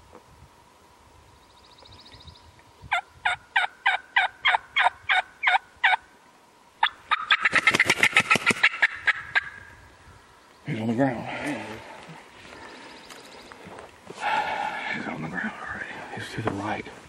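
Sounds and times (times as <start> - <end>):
turkey gobble: 2.9 - 6.0, 6.8 - 9.6
turkey yelps: 2.9 - 6.0, 6.8 - 9.6.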